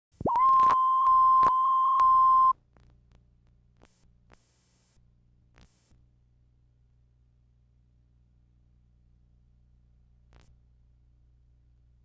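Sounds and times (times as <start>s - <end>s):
faint low hum: 0.2s - 12.0s.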